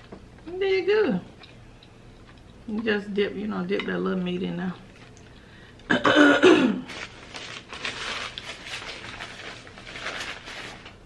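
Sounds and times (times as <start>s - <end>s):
wet clicks of eating crab: 1.4s - 2.8s.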